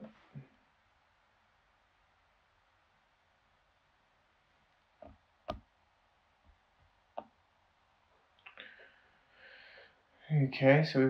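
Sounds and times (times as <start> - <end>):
soft hiss: 0.0 - 11.0.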